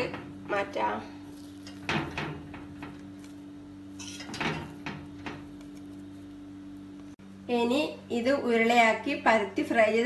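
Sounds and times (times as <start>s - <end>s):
steady low hum: 0.0s - 10.0s
metal spoon scraping a pan: 3.9s - 5.0s.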